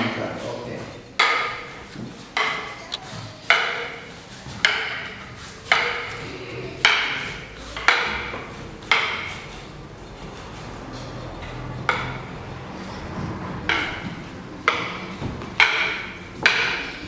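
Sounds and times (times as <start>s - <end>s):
fighting sticks clacking: 0.4s - 17.0s.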